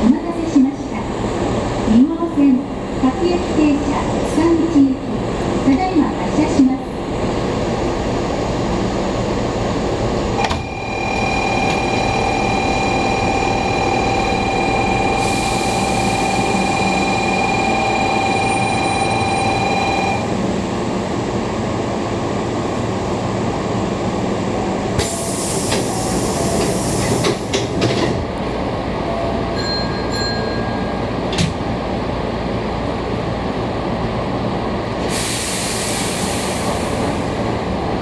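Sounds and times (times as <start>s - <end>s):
electric train equipment hum: 0.0s - 38.0s
compressed air hissing: 35.1s - 37.1s.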